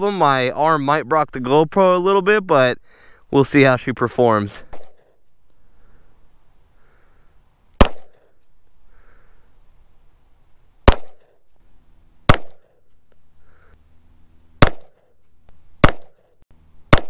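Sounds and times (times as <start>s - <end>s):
pistol shots with echo: 7.8s - 8.3s, 10.9s - 11.3s, 12.3s - 12.7s, 14.6s - 14.9s, 15.8s - 16.2s.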